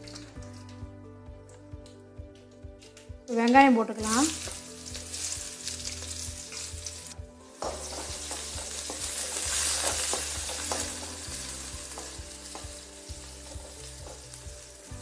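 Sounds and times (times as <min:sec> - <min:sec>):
onions sizzling in hot oil: 0:04.0 - 0:15.0
wooden spatula scraping a pan: 0:04.4 - 0:12.6.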